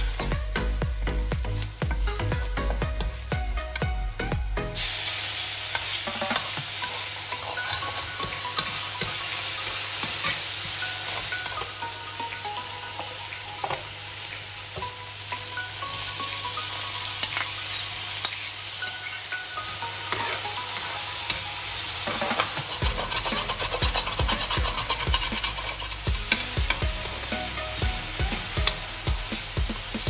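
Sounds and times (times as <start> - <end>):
oil sizzling in frying pan: 0.0 - 30.0
metal spoon scraping pan: 22.1 - 26.5.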